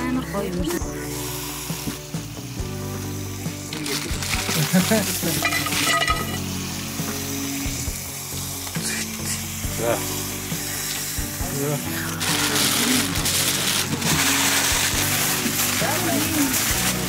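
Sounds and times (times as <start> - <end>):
hot stones sizzling: 0.0 - 17.0.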